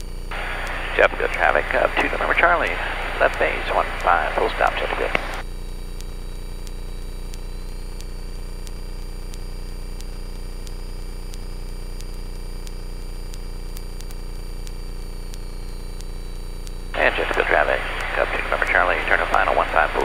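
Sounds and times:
light aircraft engine drone: 0.3s - 7.8s, 17.0s - 20.0s.

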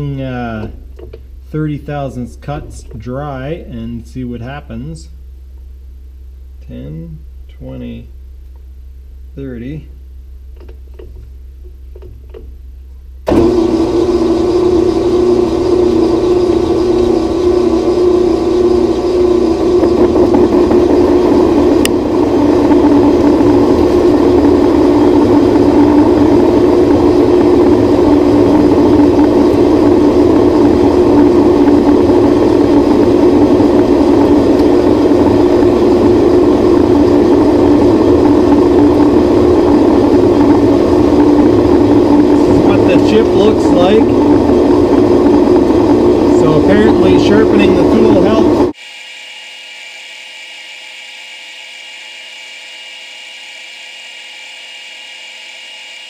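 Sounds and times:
metal lathe running: 13.3s - 48.7s
lathe tool cutting steel: 40.8s - 48.7s.

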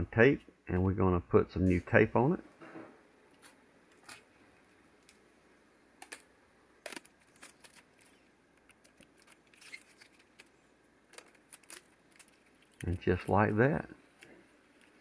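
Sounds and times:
tape being pulled off: 6.1s - 10.5s.

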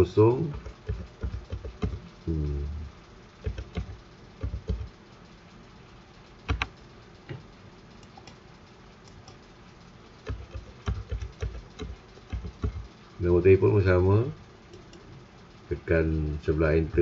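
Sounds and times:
computer keyboard keys tapping: 0.5s - 2.1s, 3.4s - 4.9s, 6.5s - 6.8s, 10.2s - 12.9s.

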